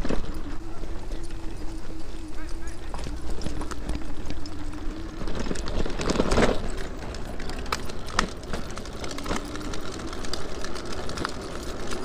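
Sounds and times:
electric motor whine: 0:00.0 - 0:12.0.

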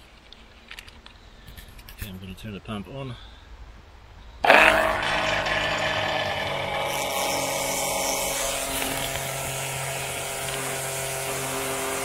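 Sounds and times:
electric oil pump motor whine: 0:04.4 - 0:12.0.

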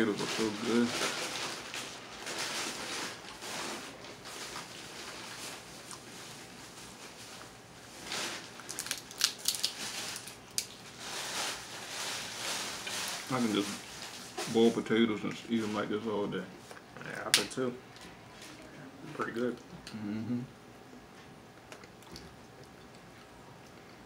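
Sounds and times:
crab shells cracking: 0:08.5 - 0:10.8.

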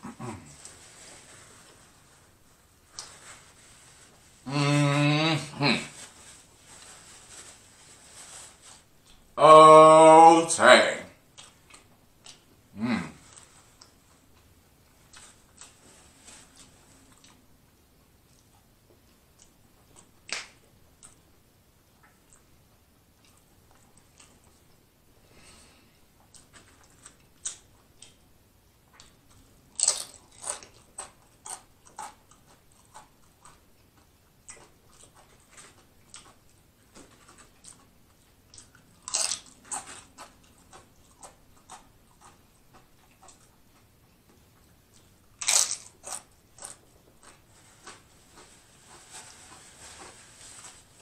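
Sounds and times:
tortilla chips crunching: 0:29.0 - 0:43.9, 0:44.9 - 0:51.0.

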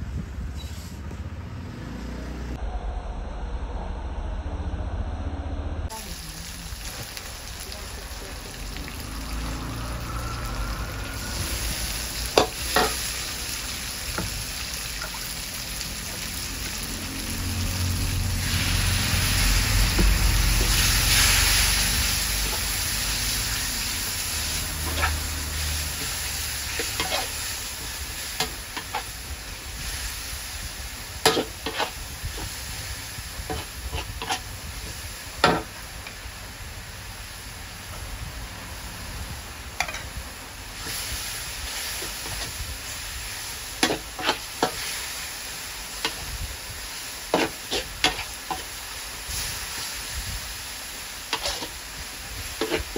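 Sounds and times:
oil sizzling in a wok: 0:05.9 - 0:52.9
metal spatula scraping a wok: 0:11.2 - 0:13.3, 0:18.4 - 0:30.0, 0:31.2 - 0:32.7, 0:33.4 - 0:34.6, 0:43.8 - 0:45.4, 0:47.2 - 0:49.9, 0:51.2 - 0:52.9.

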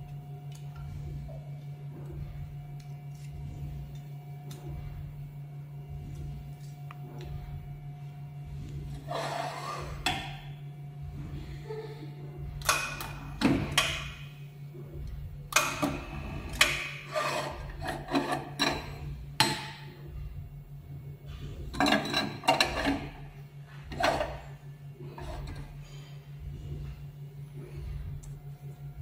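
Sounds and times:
steady low hum: 0:00.0 - 0:29.0
metal tray clanking and scraping: 0:16.8 - 0:19.1, 0:21.7 - 0:23.2.

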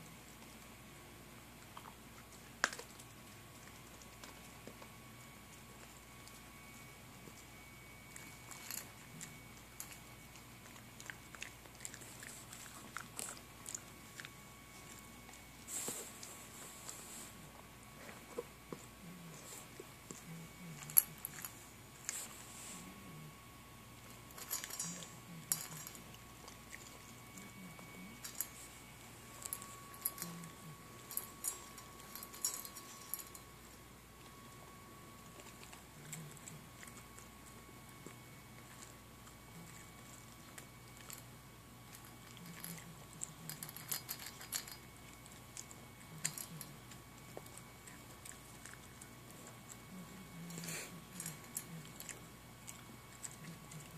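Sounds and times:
puppy crunching kibble: 0:01.4 - 0:53.9
kibble clinking in metal bowl: 0:24.4 - 0:26.0, 0:43.5 - 0:44.8.

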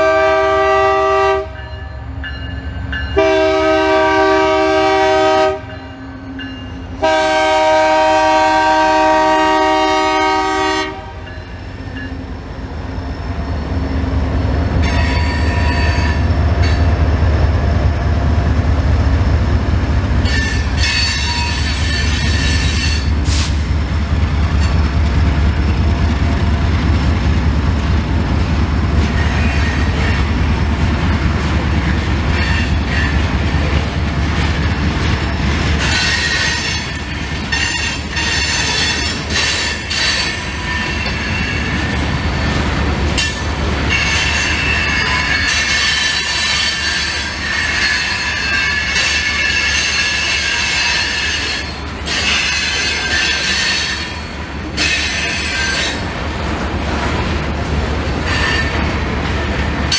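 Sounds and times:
diesel locomotive rumble: 0:00.0 - 0:59.9
train cars clattering: 0:00.0 - 0:59.9
train wheels screeching: 0:12.9 - 0:17.2, 0:20.1 - 0:26.5, 0:29.0 - 0:30.5, 0:31.3 - 0:56.2, 0:58.2 - 0:59.9.

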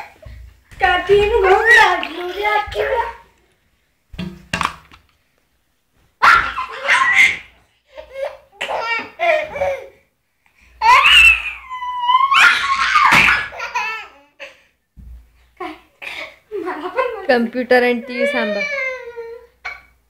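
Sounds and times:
baby high squeal: 0:10.8 - 0:13.6
baby laughing: 0:13.3 - 0:14.6.

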